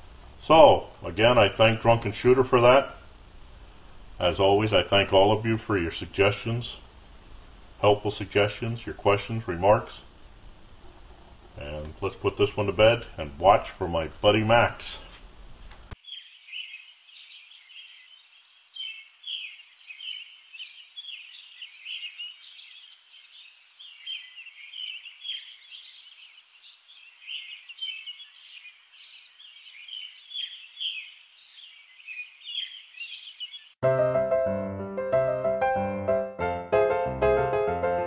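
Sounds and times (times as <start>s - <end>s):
small birds chirping: 15.9s - 33.8s.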